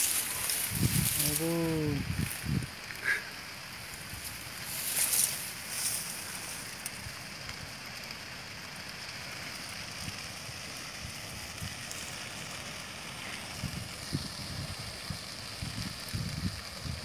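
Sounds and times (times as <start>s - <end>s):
wind buffeting microphone: 0.0s - 2.8s, 13.4s - 17.0s
grass fire hissing and crackling: 0.0s - 17.0s.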